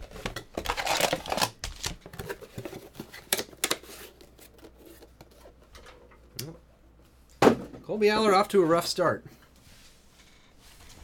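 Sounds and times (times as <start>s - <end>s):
cardboard and foil crinkling: 0.0s - 5.0s.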